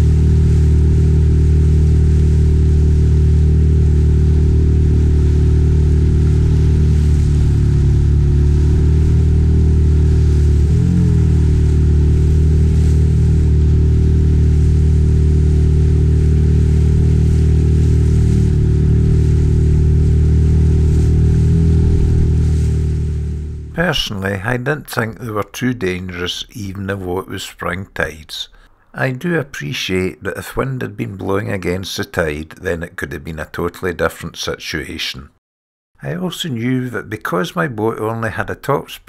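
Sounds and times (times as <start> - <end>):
outboard motor running: 0.0 - 23.8.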